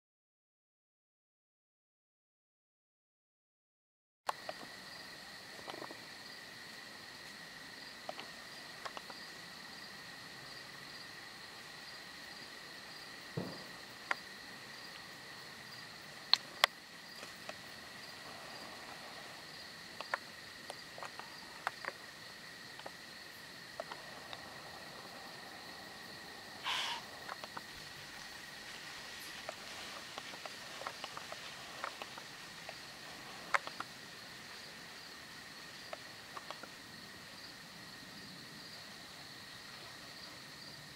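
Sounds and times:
insects buzzing: 4.3 - 40.9
pulsing insect chirp: 4.3 - 40.9
small clicks: 8.0 - 9.2.

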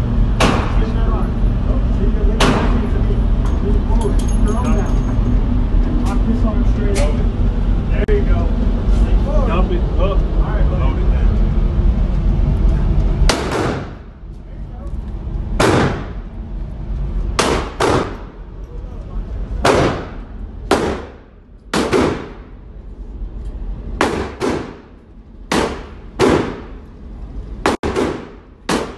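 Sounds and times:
gunshots echoing indoors: 13.3 - 14.1, 15.6 - 16.3, 17.3 - 18.4, 19.6 - 22.6, 23.9 - 26.9, 27.6 - 28.9.

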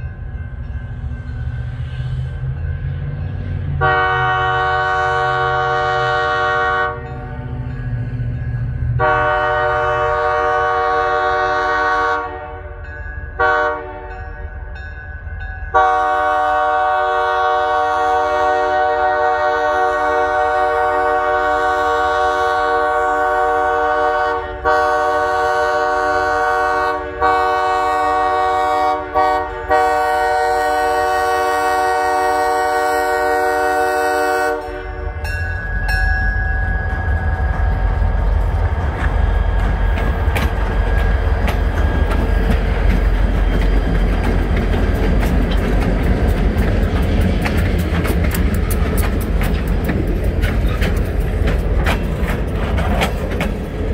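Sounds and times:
locomotive horn blasts: 3.8 - 7.6, 8.9 - 14.4, 15.7 - 35.6
train wheels clicking over rails: 35.6 - 53.9.

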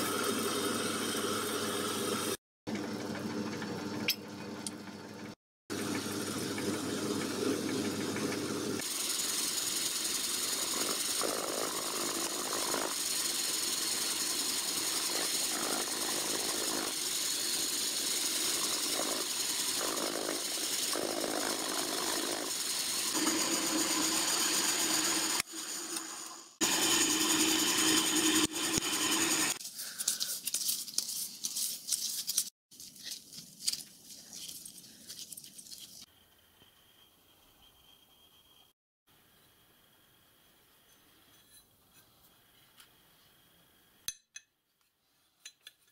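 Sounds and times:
drill mill running on steel: 5.7 - 29.6
lathe boring steel: 5.8 - 29.6.

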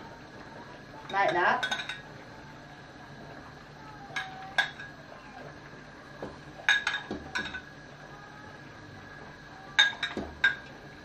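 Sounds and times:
metal ladle clinking on pot: 1.1 - 2.0, 6.7 - 7.6, 9.8 - 10.7.

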